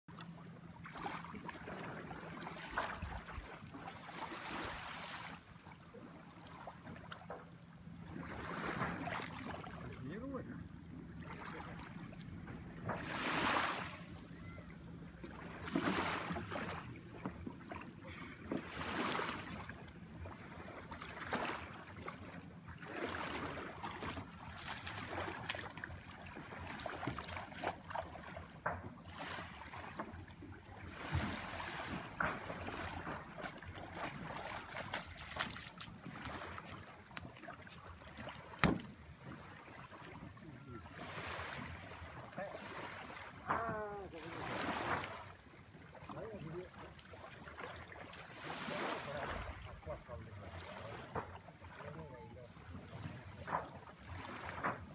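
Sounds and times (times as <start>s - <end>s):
water splashing around canoe: 0.1s - 54.9s
knocks on wooden canoe: 38.5s - 39.0s.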